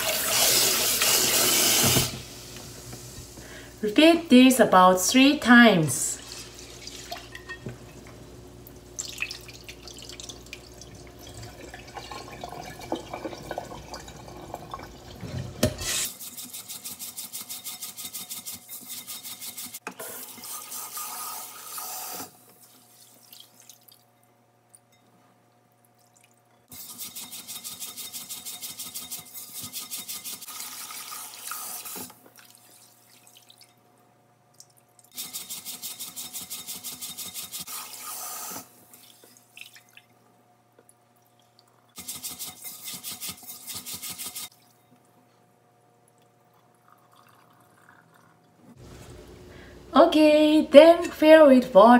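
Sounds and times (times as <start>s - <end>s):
tap water running into pot: 6.2s - 16.0s.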